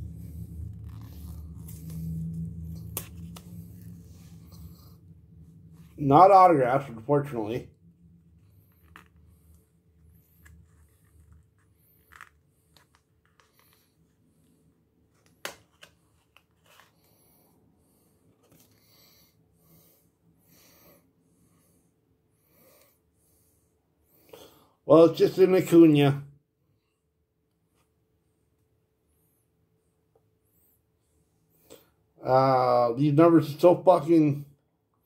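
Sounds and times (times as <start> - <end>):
soft rustle of card handling: 0.0 - 4.7, 8.2 - 17.2, 18.3 - 18.8
faint breathing: 0.0 - 6.0, 7.7 - 15.0, 16.2 - 24.9.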